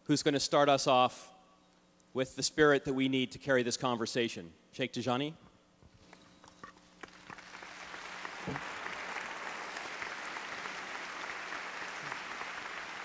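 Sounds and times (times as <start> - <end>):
audience applause: 7.0 - 13.0.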